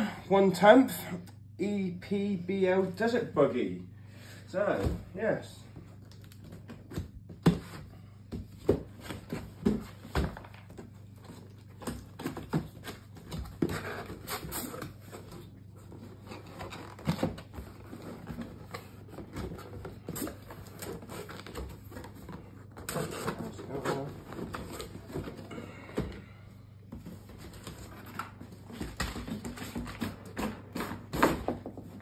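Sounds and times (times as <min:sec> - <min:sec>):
cardboard scraping and rustling: 0:08.5 - 0:25.8, 0:26.9 - 0:32.0.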